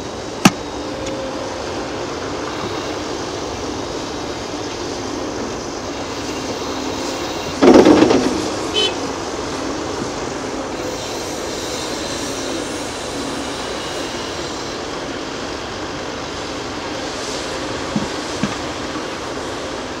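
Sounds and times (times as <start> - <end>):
heavy diesel machinery running: 0.0 - 20.0.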